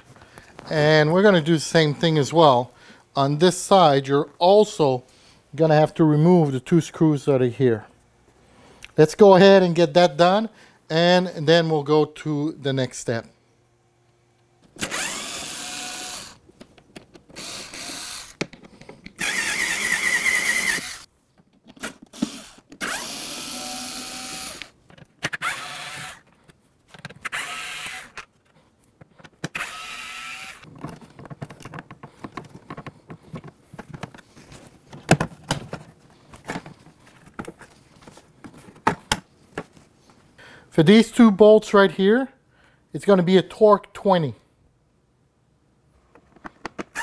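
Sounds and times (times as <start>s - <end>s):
cordless screwdriver running: 14.8s - 16.4s, 17.4s - 18.4s, 19.2s - 21.1s, 22.2s - 26.2s, 27.2s - 28.2s, 29.6s - 30.7s
clatter of screws and parts: 30.6s - 39.0s.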